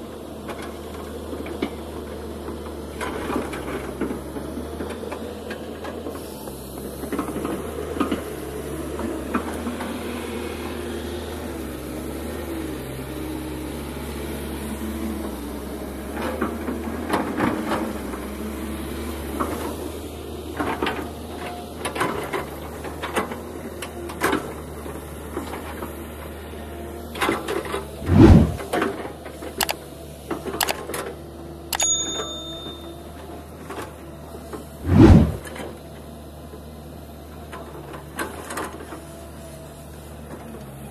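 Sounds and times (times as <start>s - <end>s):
diesel engine running: 0.0s - 31.7s, 32.3s - 40.9s.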